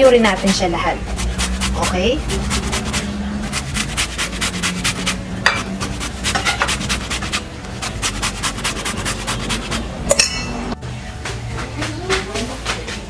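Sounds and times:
metal grater rasping: 0.0s - 9.8s
sharp metal clink: 10.1s - 10.6s.

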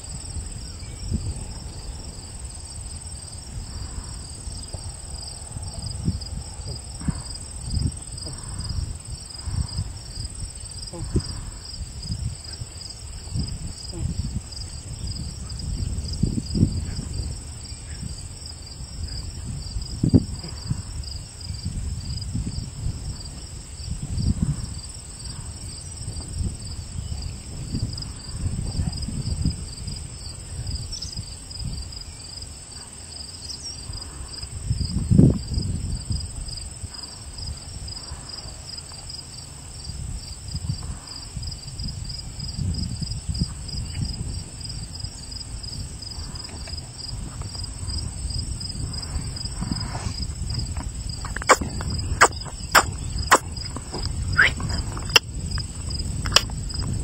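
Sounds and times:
crickets chirping: 0.0s - 57.0s
wind rumbling on microphone: 0.0s - 57.0s.

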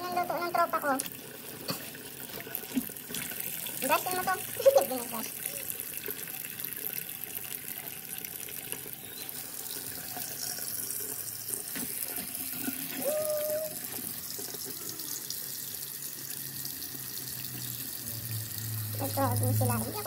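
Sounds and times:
tap water splashing: 0.9s - 15.4s.

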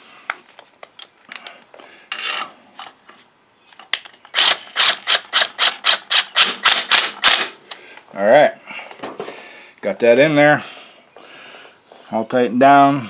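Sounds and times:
impact driver hammering bolt: 4.4s - 7.6s.

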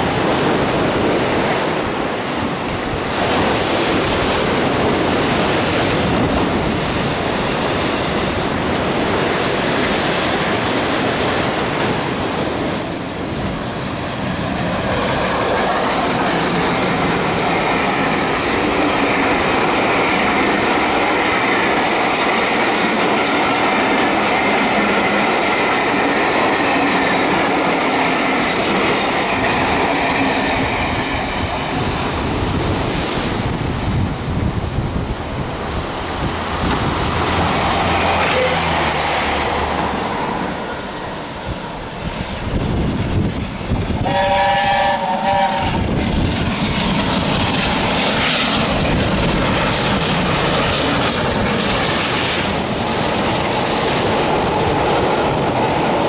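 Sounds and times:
high wheel squeal: 37.4s - 40.1s.

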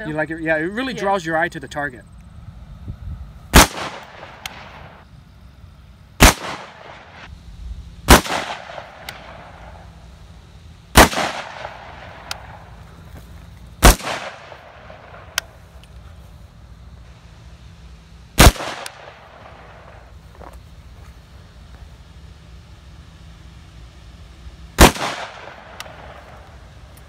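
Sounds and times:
rifle shots: 3.5s - 5.0s, 6.2s - 7.3s, 8.0s - 9.8s, 10.9s - 12.7s, 13.8s - 15.4s, 18.4s - 20.0s, 24.8s - 26.5s.

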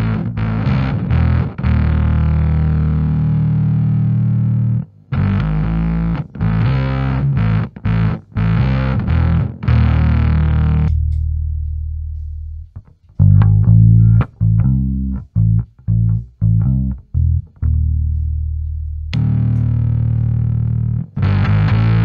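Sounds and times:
clean bass guitar notes: 0.0s - 22.0s
fuzzed bass guitar notes: 0.0s - 22.0s.

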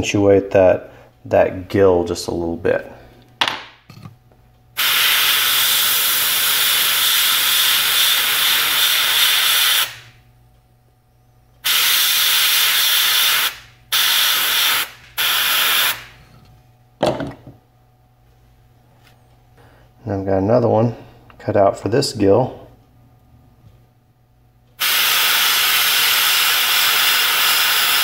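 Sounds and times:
airbrush air hiss: 4.8s - 10.1s, 11.6s - 16.2s, 24.8s - 28.0s.

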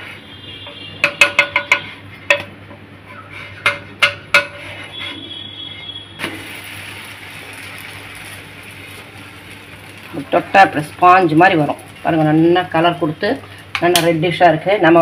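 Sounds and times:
spatula tapping a pan: 0.6s - 2.8s, 3.6s - 5.1s
dosa sizzling on hot pan: 3.1s - 14.7s.

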